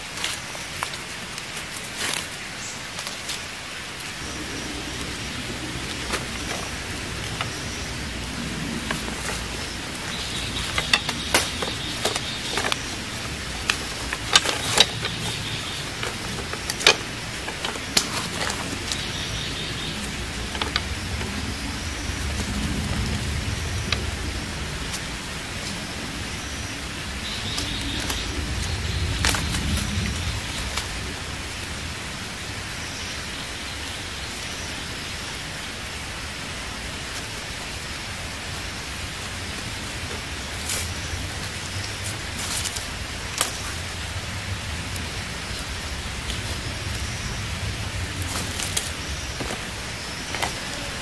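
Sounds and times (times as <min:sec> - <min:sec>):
background hiss: 0:00.0 - 0:51.0
wooden sticks clicking together: 0:10.4 - 0:19.1.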